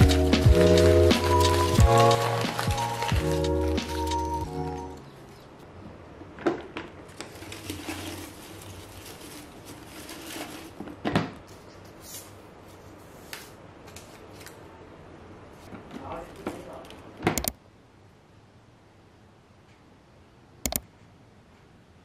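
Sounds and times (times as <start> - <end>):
paper rustling: 0.0 - 5.0, 7.1 - 14.6.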